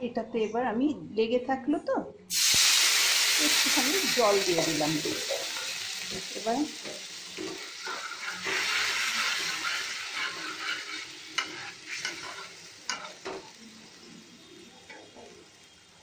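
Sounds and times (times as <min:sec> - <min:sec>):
water sizzling in hot pan: 0:02.3 - 0:16.0
spatula scraping pan: 0:07.3 - 0:13.6.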